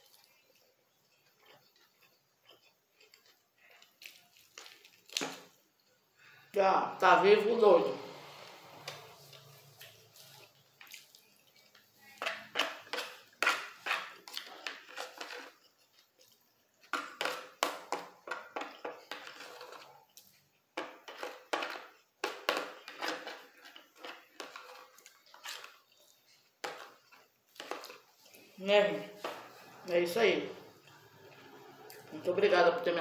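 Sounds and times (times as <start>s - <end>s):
person chewing food: 0.0s - 6.5s, 8.5s - 29.9s, 30.6s - 32.2s
spoon scraping a plate: 16.9s - 29.8s.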